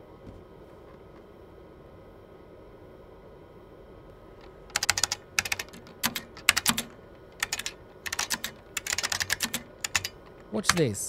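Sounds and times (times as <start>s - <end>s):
keyboard key clicks: 4.7s - 10.9s.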